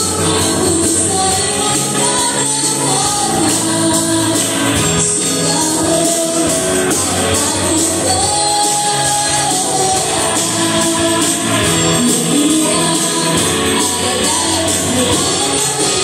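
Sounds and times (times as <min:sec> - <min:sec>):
keyboard and band accompaniment: 0:00.0 - 0:16.0
woman singing through microphone: 0:00.0 - 0:16.0.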